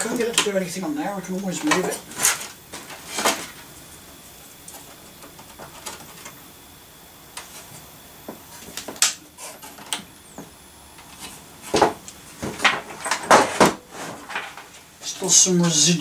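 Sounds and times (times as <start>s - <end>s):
cables rustling: 0.0s - 6.6s.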